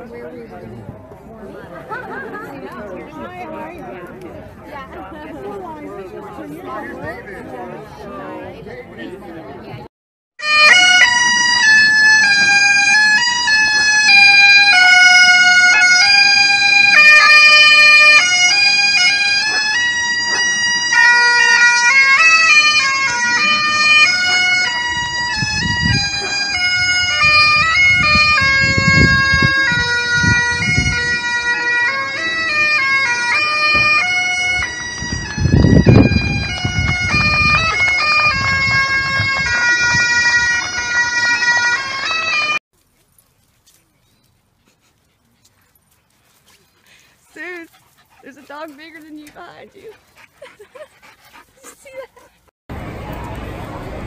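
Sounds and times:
bagpipes playing: 10.4s - 42.6s.

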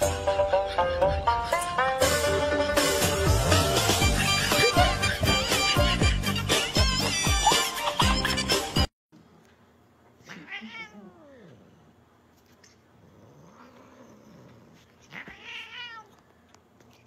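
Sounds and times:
cat meowing: 10.2s - 11.5s, 15.1s - 16.2s.

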